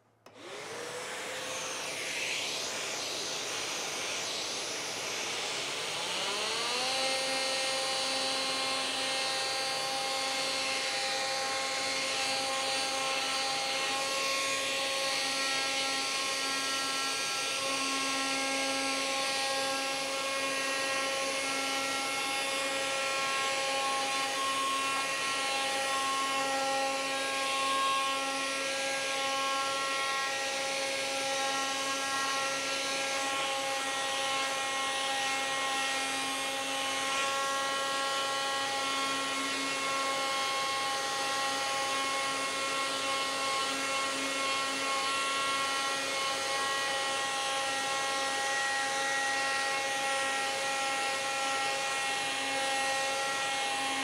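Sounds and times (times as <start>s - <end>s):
vacuum cleaner: 0.0s - 54.0s
multitool sanding wood: 0.2s - 54.0s.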